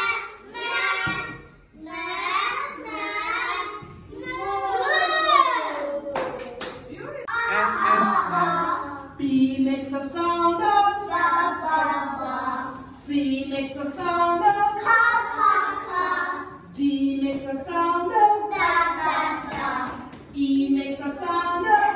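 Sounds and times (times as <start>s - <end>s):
children singing: 0.0s - 6.0s, 7.3s - 9.2s, 10.6s - 12.9s, 13.9s - 16.7s, 17.7s - 20.2s.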